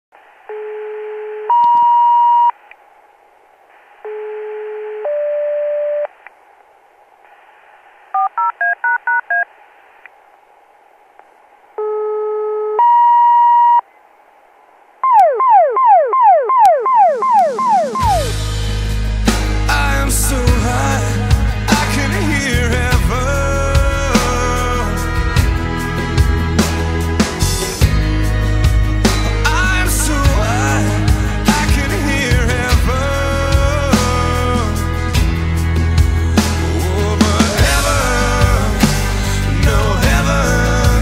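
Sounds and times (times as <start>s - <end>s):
short beeps: 0.5s - 2.6s, 11.8s - 13.8s
two-tone radio paging alerts: 0.5s - 2.6s, 11.8s - 13.9s, 15.0s - 18.3s
scanner hiss: 2.6s - 4.9s, 6.1s - 8.5s
falling chirp tones: 15.0s - 18.6s
rock music: 17.2s - 41.0s.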